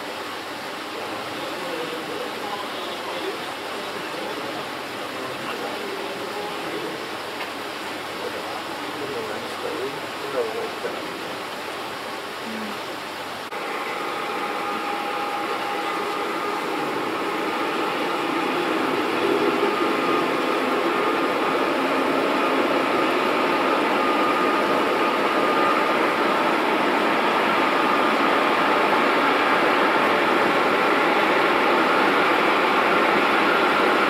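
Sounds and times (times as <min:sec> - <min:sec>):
freight train rumbling past: 0:13.5 - 0:34.0.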